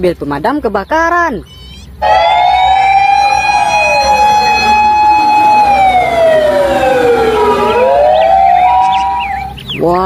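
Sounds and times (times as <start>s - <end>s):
fire truck siren wailing: 1.9s - 9.6s
second siren tone falling: 2.0s - 9.6s.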